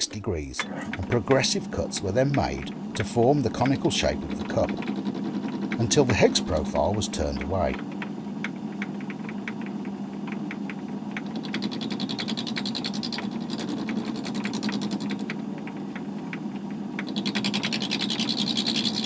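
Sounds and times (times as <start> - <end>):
lathe motor humming: 0.6 - 7.8.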